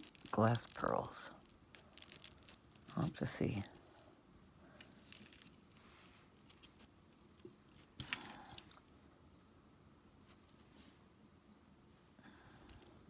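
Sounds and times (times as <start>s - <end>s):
beads clicking together: 0.0s - 3.6s, 4.8s - 8.9s.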